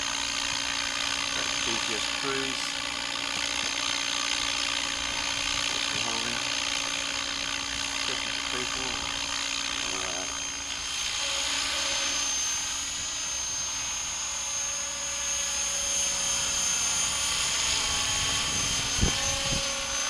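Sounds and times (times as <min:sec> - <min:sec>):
radio-controlled helicopter whine: 0:00.0 - 0:20.0.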